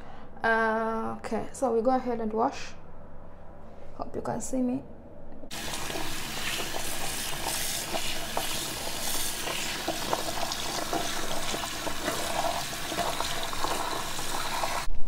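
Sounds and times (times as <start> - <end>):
tap water splashing into sink: 9.4 - 14.9.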